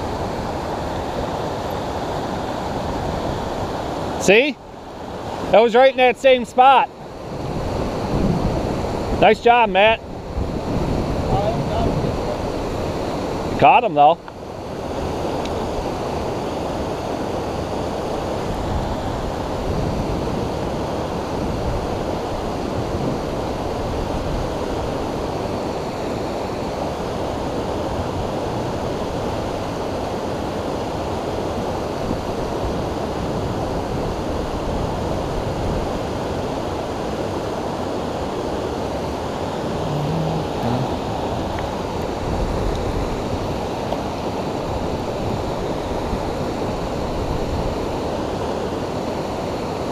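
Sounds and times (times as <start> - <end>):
creek flowing over rocks: 36.1 - 49.9.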